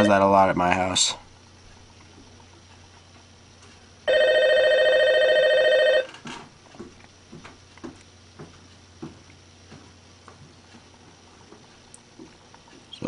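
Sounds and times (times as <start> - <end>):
electronic telephone ring: 4.0 - 6.1.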